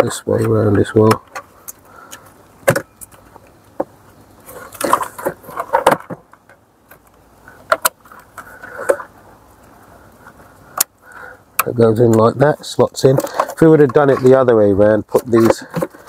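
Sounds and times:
connectors and wires rattling: 11.6 - 16.0.

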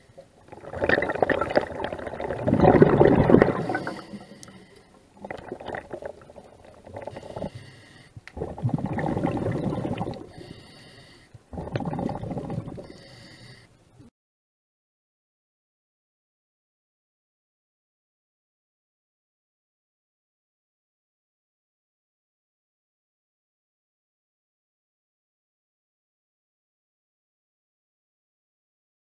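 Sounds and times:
underwater bubbling and gurgling: 0.0 - 13.6.

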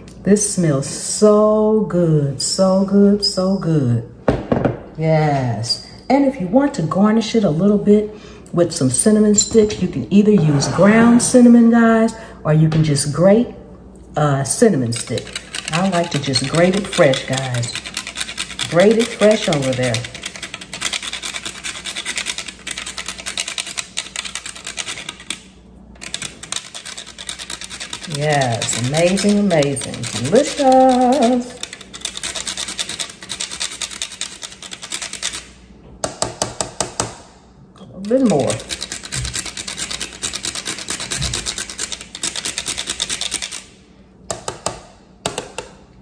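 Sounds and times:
cinnamon stick scraping on grater: 14.9 - 25.3, 26.0 - 35.4, 38.0 - 43.5.

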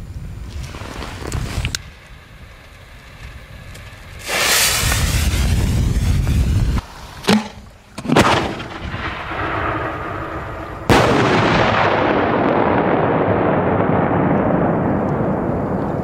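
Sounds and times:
firework burst with rumbling echo: 4.2 - 6.8, 8.1 - 16.0
firework launch bang: 4.2 - 16.0.

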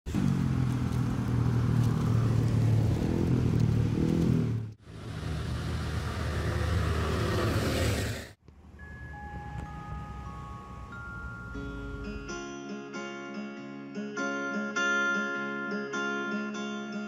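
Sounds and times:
vehicle engine humming: 0.1 - 12.4.

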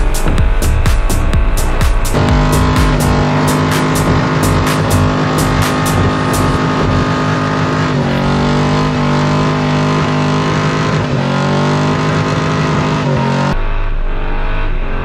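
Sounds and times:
truck engine revving high: 0.0 - 15.0.

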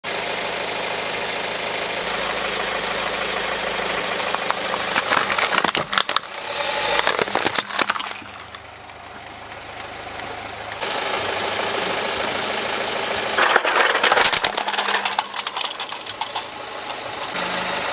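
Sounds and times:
car engine running: 0.1 - 17.9
plastic toy cracking and snapping: 4.2 - 8.7, 13.4 - 16.5.

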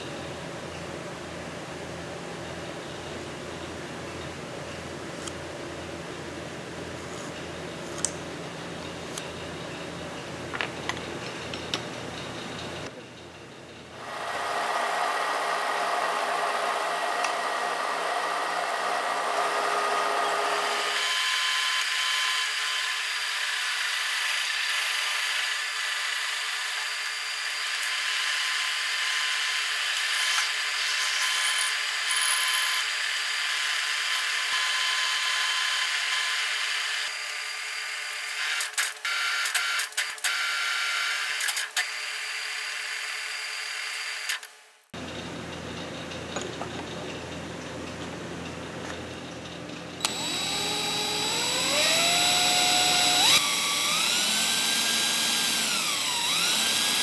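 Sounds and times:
drill bit cutting into steel: 14.0 - 37.6, 50.0 - 57.0.

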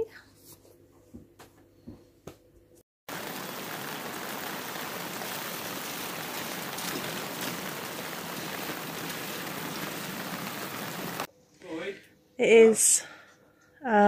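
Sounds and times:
heavy rain on pavement and cars: 3.1 - 11.3.

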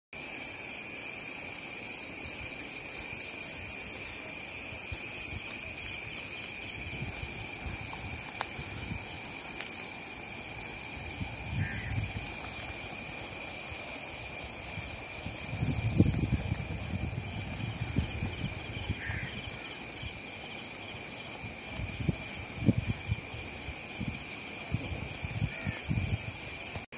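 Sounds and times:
insect buzzing: 0.2 - 26.9
insect trill: 0.2 - 26.9
steady hiss: 0.2 - 26.9
wind rumble on microphone: 4.7 - 9.4, 10.2 - 20.3, 21.3 - 26.8.

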